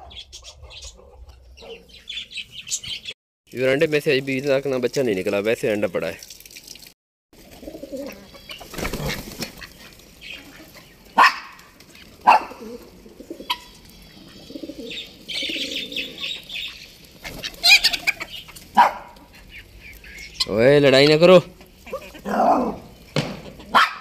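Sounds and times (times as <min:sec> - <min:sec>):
sharp bird calls: 0:00.0 - 0:03.2, 0:07.8 - 0:24.0
wings flapping: 0:07.4 - 0:23.9.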